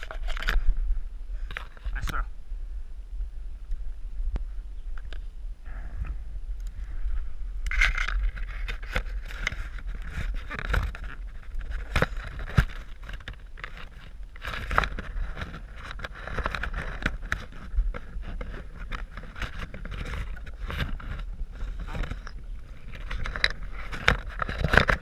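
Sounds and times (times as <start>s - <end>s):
low rumble: 0.0s - 13.0s
leaves and branches rustling: 0.0s - 25.0s
twigs cracking and snapping: 7.6s - 25.0s.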